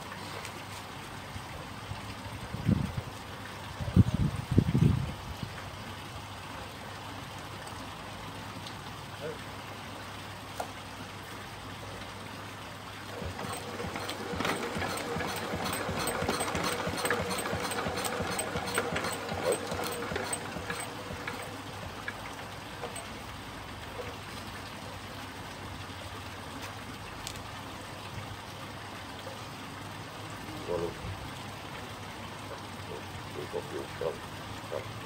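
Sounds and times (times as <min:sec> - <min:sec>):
stationary engine clicking slowly: 0:13.1 - 0:24.2.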